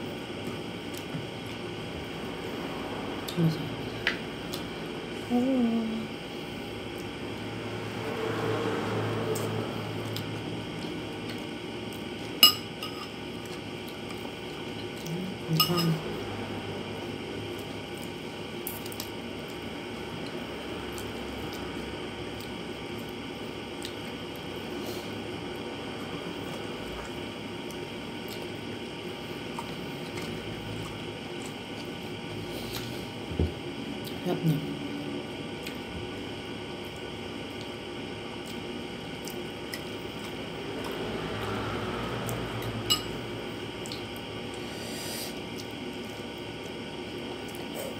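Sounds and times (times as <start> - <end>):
steady background hum: 0.0 - 47.9
wet chewing sounds: 36.8 - 41.1, 43.7 - 44.7.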